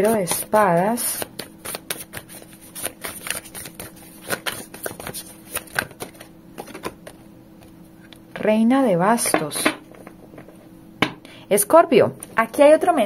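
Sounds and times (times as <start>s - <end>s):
cards clicking and flicking: 0.0s - 7.2s.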